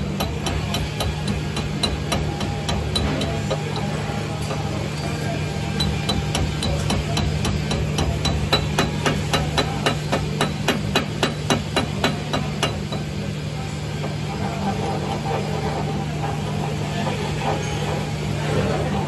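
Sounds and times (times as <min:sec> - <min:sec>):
hammer tapping on steel: 0:00.0 - 0:13.1.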